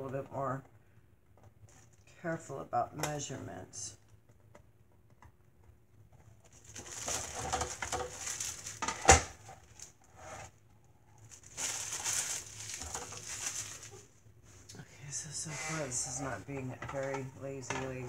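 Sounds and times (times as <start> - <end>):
plastic packaging crinkling: 6.3 - 14.2.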